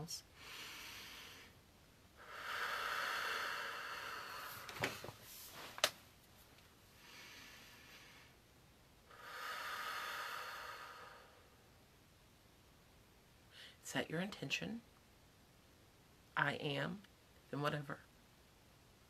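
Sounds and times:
woman breathing deeply: 0.3 - 1.6, 2.2 - 5.6, 6.9 - 8.5, 9.1 - 11.7.

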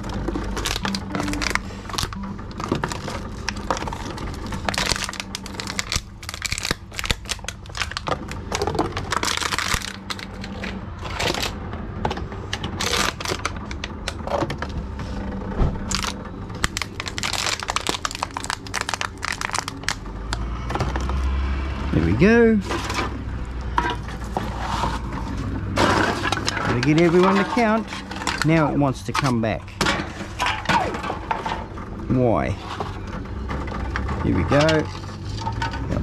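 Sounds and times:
plastic bottles crinkling: 0.0 - 11.6, 12.6 - 14.6, 15.8 - 21.2, 22.6 - 29.4
machine humming: 0.0 - 36.0.

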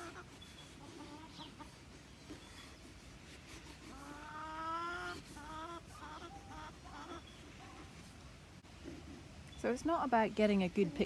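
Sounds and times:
long drawn-out hen call: 0.0 - 1.8, 3.9 - 7.3
hens calling: 0.0 - 8.2.

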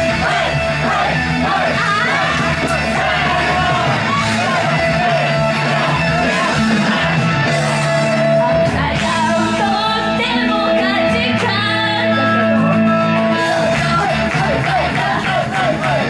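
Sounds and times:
loud pop-rock music: 0.0 - 16.0
woman singing into microphone: 8.4 - 12.4.

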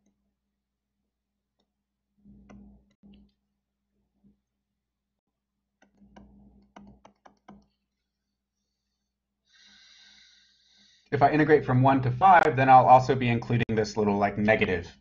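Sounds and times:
stylus tapping on touchscreen: 5.8 - 7.8.

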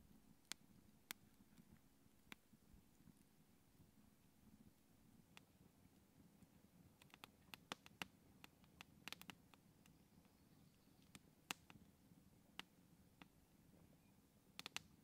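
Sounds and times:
campfire crackling: 0.0 - 15.0
fire pops and snaps: 6.4 - 10.0, 11.0 - 11.9, 14.5 - 15.0.

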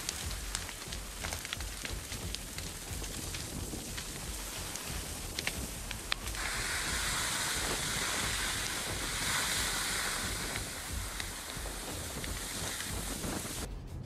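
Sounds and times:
fire crackles and pops: 0.0 - 13.7
wildfire rushing: 0.0 - 13.7.

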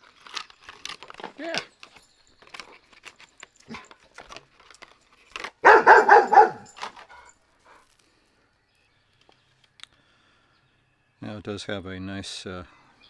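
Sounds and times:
plastic blister pack crinkling: 0.0 - 6.0
dog barking: 5.6 - 6.8.

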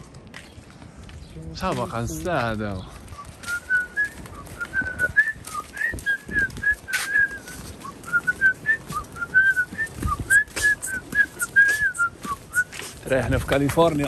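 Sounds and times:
man whistling a tune: 3.1 - 12.9.

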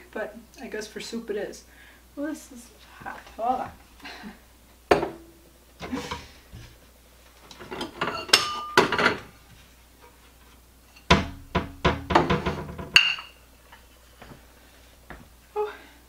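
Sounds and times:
ceramic dishes clinking: 7.8 - 9.2, 13.0 - 13.4
cupboard door opening and shutting: 11.1 - 13.0.

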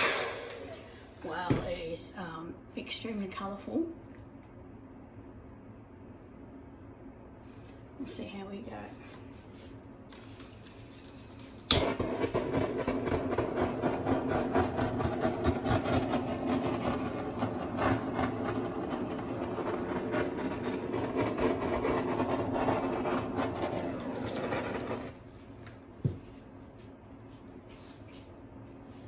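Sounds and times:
handheld dryer blowing air: 0.0 - 1.3, 10.2 - 25.2.

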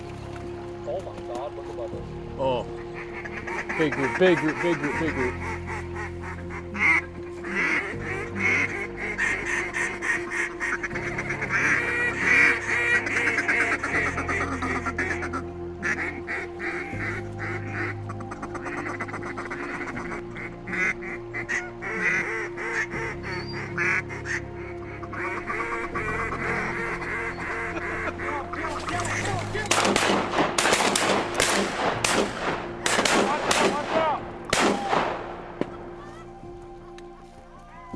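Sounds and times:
background music with low bass: 0.0 - 37.9
duck call quacks: 3.0 - 30.2.

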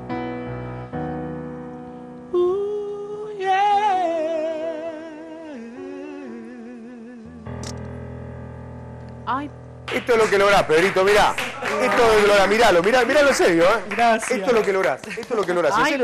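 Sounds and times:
man singing with vibrato: 2.4 - 7.6.

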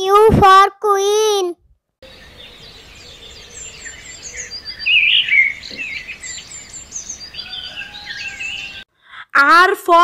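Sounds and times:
small birds chirping: 2.0 - 8.9.

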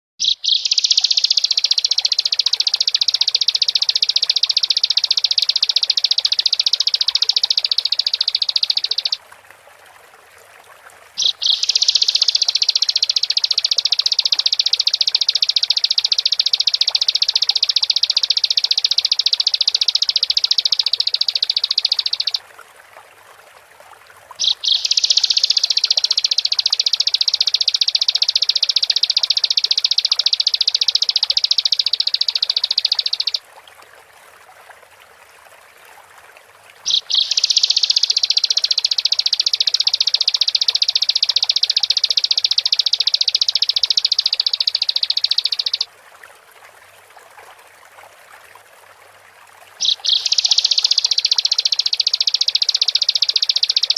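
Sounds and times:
bird singing high rapid trills: 0.2 - 9.2, 11.2 - 22.4, 24.4 - 33.4, 36.9 - 45.9, 49.8 - 53.9.

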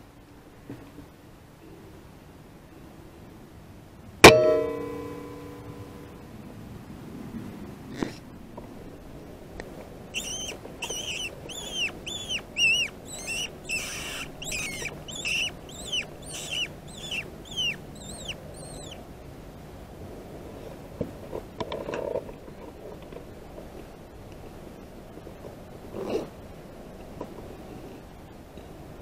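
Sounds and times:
animal high squeaks: 10.1 - 19.0.

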